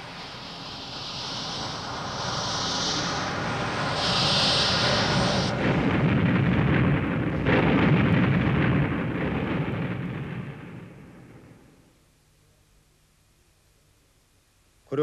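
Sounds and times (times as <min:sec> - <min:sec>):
explosion blasts rumbling: 0:01.8 - 0:11.8.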